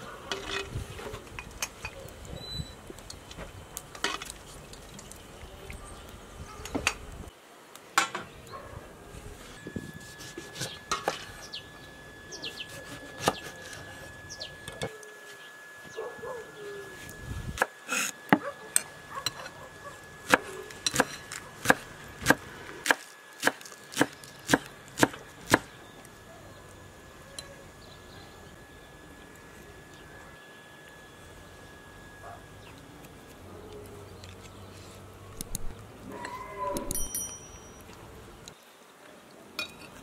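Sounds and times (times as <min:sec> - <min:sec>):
knife chopping on wooden board: 0:20.3 - 0:25.7.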